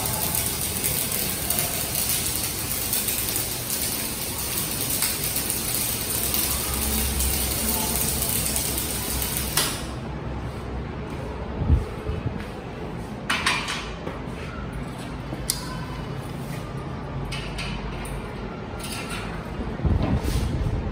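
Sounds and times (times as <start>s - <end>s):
welding arc crackling hiss: 0.0s - 10.0s.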